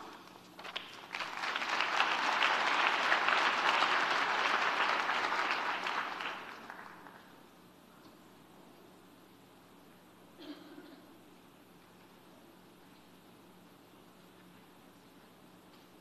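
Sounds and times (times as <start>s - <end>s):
audience applauding: 0.0s - 7.4s.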